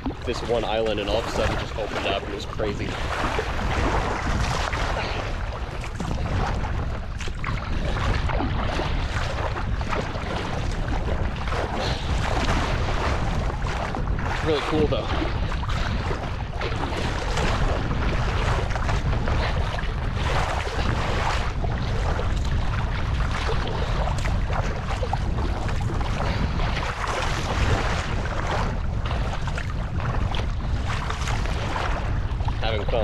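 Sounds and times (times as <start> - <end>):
water splashing around kayak: 0.0 - 33.0
wind buffeting microphone: 0.0 - 33.0.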